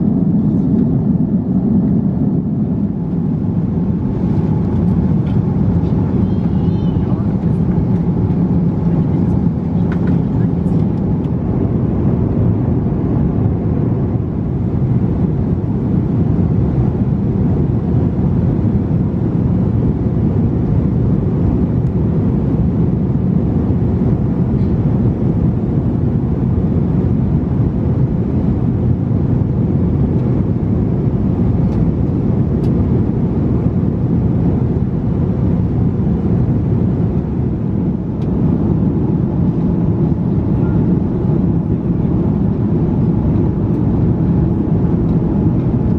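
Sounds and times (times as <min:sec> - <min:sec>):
airplane cabin engine rumble: 0:00.0 - 0:45.9.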